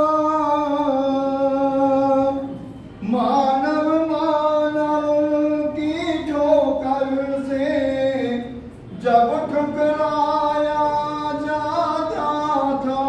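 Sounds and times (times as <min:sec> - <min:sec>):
man singing devotional song: 0:00.0 - 0:13.0.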